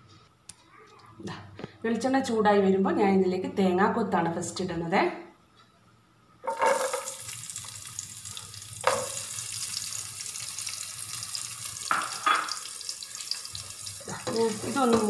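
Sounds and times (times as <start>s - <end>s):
coconut frying in hot oil: 6.5s - 15.0s.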